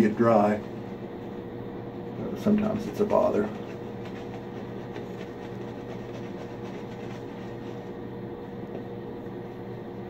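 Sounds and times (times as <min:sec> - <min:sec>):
exhaust fan humming: 0:00.0 - 0:10.0
shaving brush swishing: 0:02.4 - 0:08.1.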